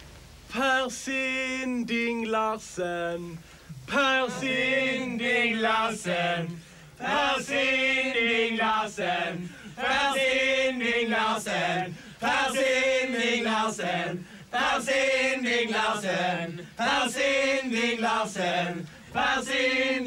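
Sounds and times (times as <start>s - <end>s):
men chanting together: 3.9s - 20.0s.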